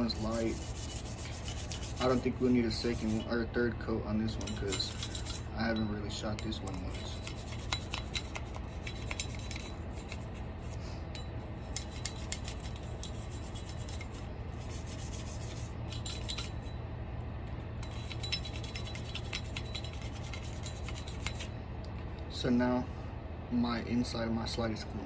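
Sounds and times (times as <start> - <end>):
bristle brush scrubbing metal: 0.0 - 3.4, 4.3 - 10.8, 11.7 - 16.6, 17.9 - 21.5.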